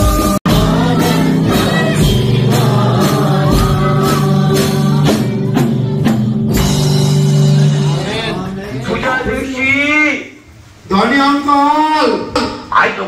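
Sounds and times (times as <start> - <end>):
worship song with instruments: 0.0 - 13.0.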